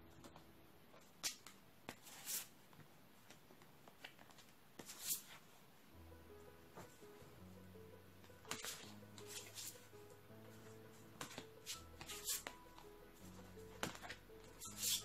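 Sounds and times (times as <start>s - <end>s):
paper cards rustling and tapping: 8.3s - 15.0s.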